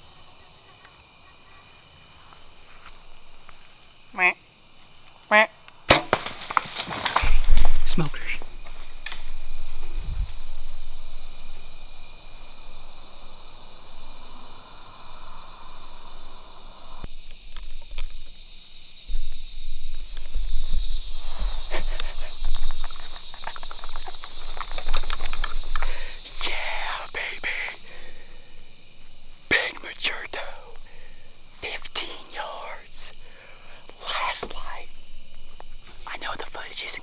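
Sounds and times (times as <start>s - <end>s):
insect chorus drone: 0.0s - 37.0s
handling rustles and bumps: 5.9s - 11.8s.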